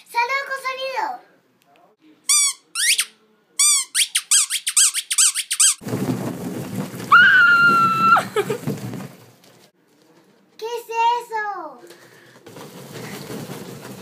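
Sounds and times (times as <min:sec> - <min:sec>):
rubber ball squeaking: 0:02.3 - 0:05.8
low rumbling rustle: 0:05.8 - 0:10.4, 0:12.0 - 0:14.0.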